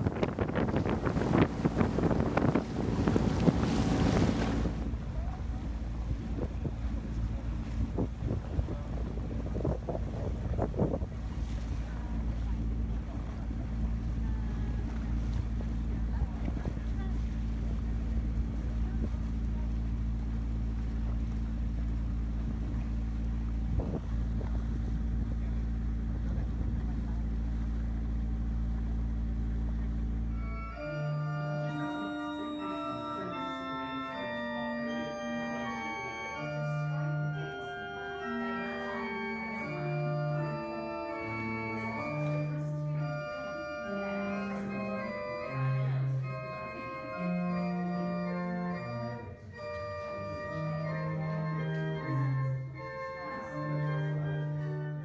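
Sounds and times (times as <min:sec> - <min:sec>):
motorboat engine running: 0:00.0 - 0:53.1
organ playing held chords: 0:24.7 - 0:55.0.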